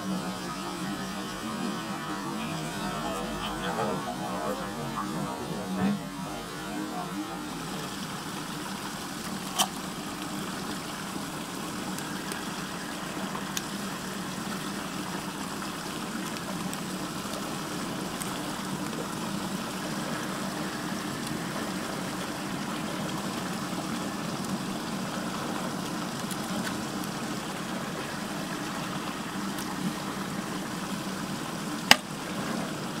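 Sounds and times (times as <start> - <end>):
low steady hum: 0.0 - 14.1.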